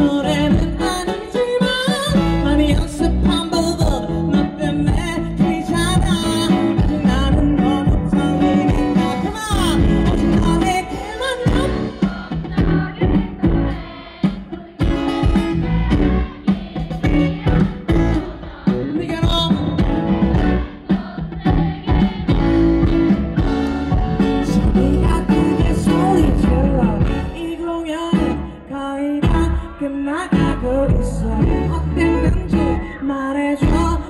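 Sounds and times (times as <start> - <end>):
person singing: 0.0 - 12.0, 24.4 - 34.0
live pop band music: 0.0 - 34.0.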